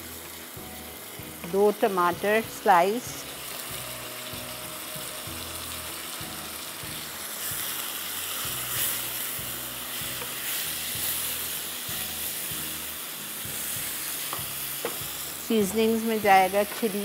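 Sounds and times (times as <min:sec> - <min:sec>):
tomatoes sizzling in oil: 0:00.0 - 0:17.0
spatula scraping and tapping pan: 0:10.1 - 0:11.2, 0:14.2 - 0:15.1.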